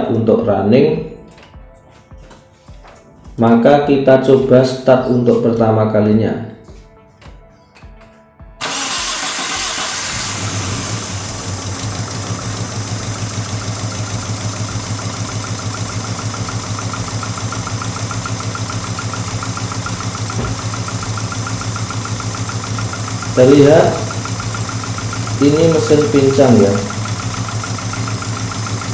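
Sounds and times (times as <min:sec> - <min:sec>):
car engine starting and idling rough: 0:08.6 - 0:28.9.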